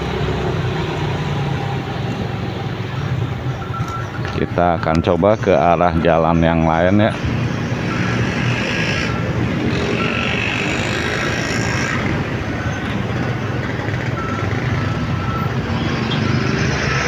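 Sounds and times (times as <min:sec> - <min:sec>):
bus: 0:00.0 - 0:17.0
other motorbikes: 0:00.0 - 0:17.0
truck: 0:00.0 - 0:17.0.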